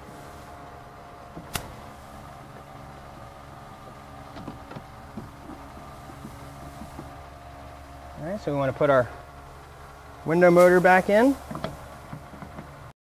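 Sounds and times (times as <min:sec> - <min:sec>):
steady low hum: 0:00.0 - 0:12.9
sharp plastic snap: 0:01.5 - 0:01.8.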